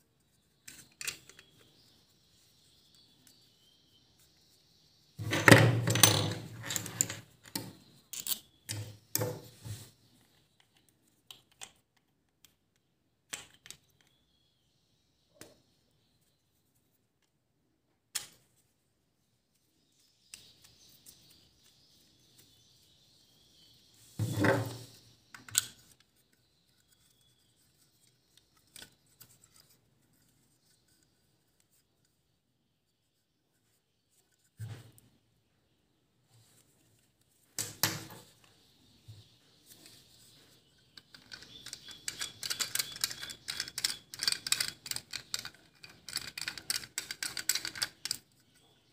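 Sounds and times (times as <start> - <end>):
plastic parts knocking and rattling: 5.2 - 9.9, 24.2 - 25.9, 40.8 - 48.6.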